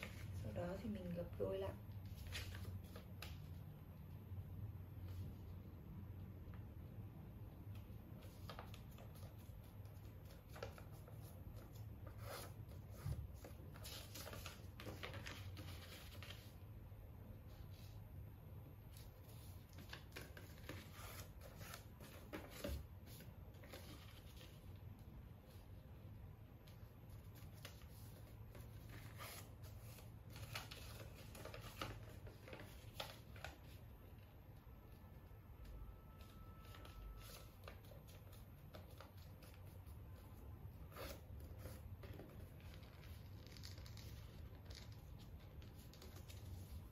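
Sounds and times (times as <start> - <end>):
paper crinkling and rustling: 2.0 - 3.6, 7.8 - 16.6, 18.9 - 24.8, 26.6 - 34.2, 36.1 - 46.9.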